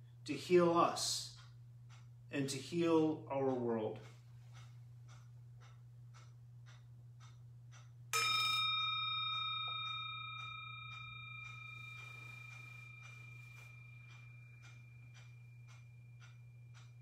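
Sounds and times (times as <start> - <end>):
singing bowl ringing: 8.1 - 17.0.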